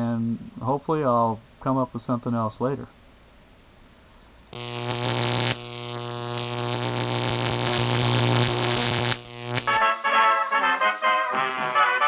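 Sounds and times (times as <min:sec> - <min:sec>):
faint hiss: 0:00.0 - 0:09.7
loud buzzing hum: 0:04.5 - 0:10.0.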